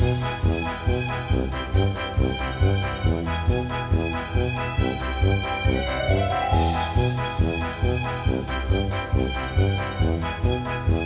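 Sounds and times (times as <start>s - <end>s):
music with quick beat: 0.0s - 11.0s
rising tone: 5.7s - 7.4s.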